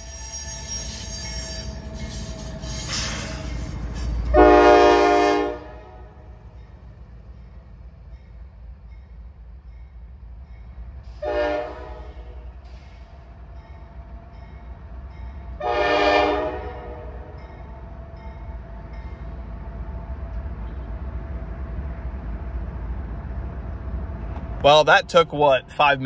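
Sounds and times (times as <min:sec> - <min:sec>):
locomotive air horn blasts: 0:04.3 - 0:06.4, 0:11.2 - 0:12.6, 0:15.6 - 0:17.4.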